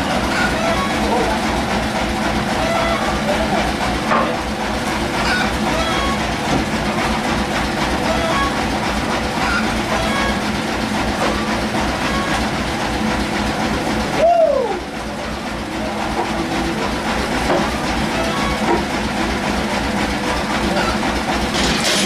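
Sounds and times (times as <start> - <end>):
sawmill machinery drone: 0.0 - 22.0.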